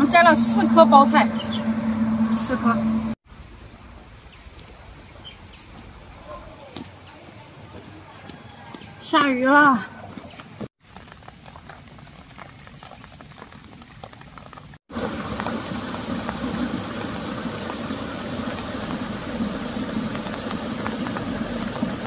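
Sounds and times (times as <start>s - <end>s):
steady rain hiss: 3.2s - 7.7s, 10.8s - 22.0s
light rain patter: 3.2s - 8.3s, 8.9s - 22.0s.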